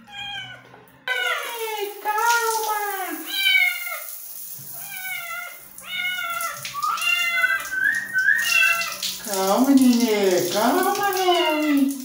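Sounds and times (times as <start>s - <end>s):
cat meowing: 0.0s - 1.5s, 3.3s - 4.1s, 4.7s - 7.7s, 8.4s - 9.0s.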